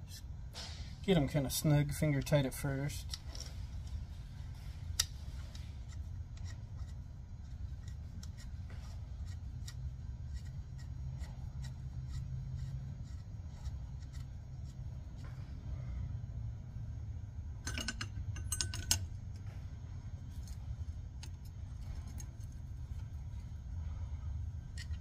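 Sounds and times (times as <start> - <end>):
steady low hum: 0.0 - 25.0
nuts clicking on metal studs: 17.6 - 19.5.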